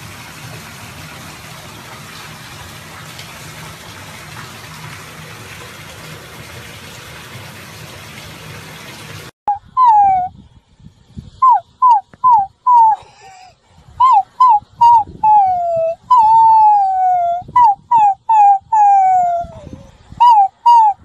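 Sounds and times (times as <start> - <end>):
puppies howling and yelping: 9.5 - 10.3, 14.0 - 21.0.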